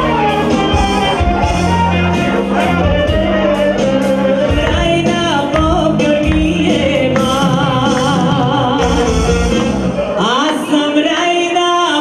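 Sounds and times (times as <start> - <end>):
folk dance music with singing: 0.0 - 12.0.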